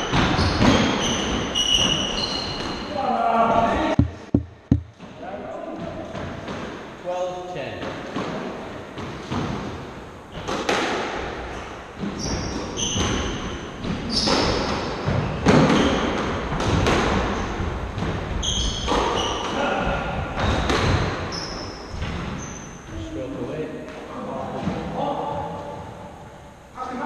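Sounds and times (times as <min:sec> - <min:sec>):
shoes squeaking on wooden floor: 0:00.1 - 0:03.0, 0:03.7 - 0:05.0
squash ball hits: 0:03.9 - 0:05.1, 0:20.4 - 0:21.3.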